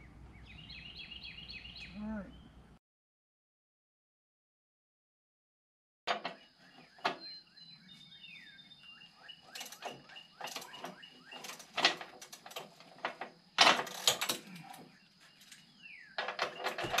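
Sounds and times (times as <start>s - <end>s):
small birds chirping: 0.0s - 2.8s, 6.3s - 13.6s, 14.4s - 17.0s
metal clanking and rattling: 9.6s - 15.6s, 16.2s - 17.0s.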